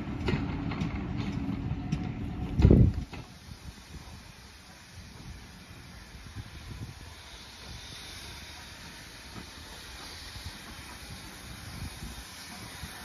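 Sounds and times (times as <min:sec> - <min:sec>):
wind rumbling on microphone: 0:00.0 - 0:04.4, 0:05.0 - 0:07.8, 0:10.3 - 0:13.0
steam locomotive hissing steam: 0:00.0 - 0:13.0.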